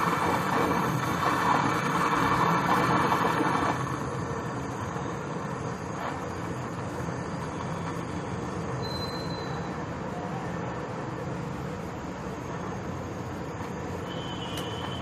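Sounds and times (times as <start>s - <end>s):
gas torch flame hissing: 0.0s - 15.0s.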